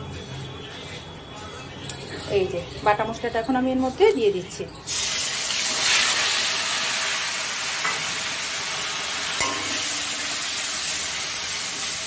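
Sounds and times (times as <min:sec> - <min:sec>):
spice paste sizzling in oil: 0:04.9 - 0:12.0.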